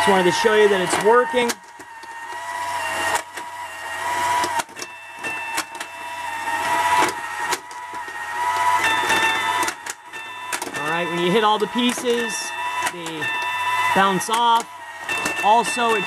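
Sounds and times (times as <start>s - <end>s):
electronic pinball tone: 0.0s - 16.0s
ball clicking on bumpers: 6.6s - 16.0s.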